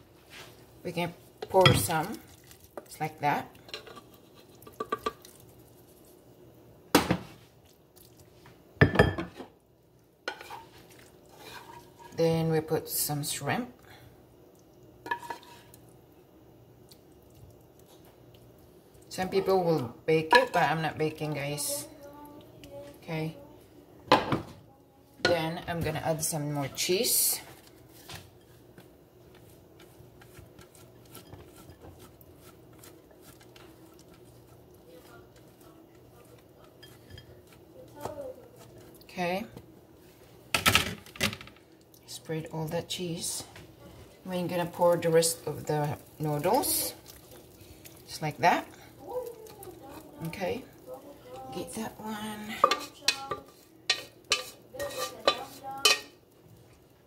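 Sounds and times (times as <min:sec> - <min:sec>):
cheese scraping on metal grater: 0:53.9 - 0:55.6.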